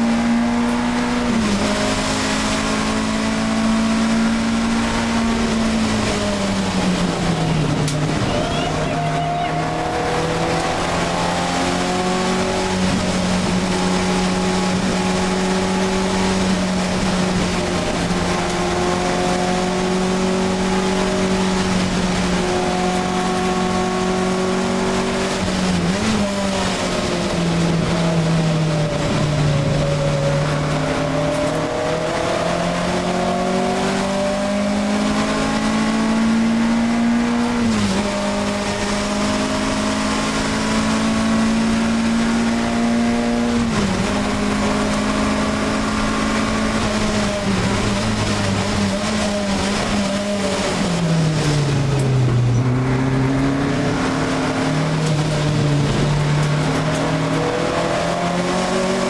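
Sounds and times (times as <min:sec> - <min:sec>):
race car engine at high revs: 0:00.0 - 0:59.0.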